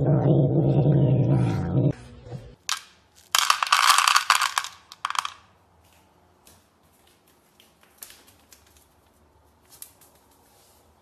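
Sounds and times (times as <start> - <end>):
kibble rattling into plastic bowl: 2.7 - 5.4.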